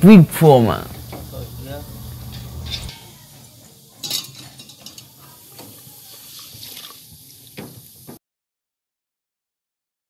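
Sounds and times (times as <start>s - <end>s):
steel pots and tongs clinking: 0.9s - 8.0s
liquid sloshing: 6.1s - 7.2s.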